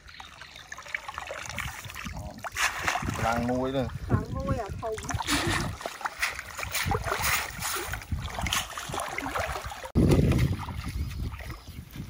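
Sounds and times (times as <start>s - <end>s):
water splashing from wading: 0.0s - 11.6s.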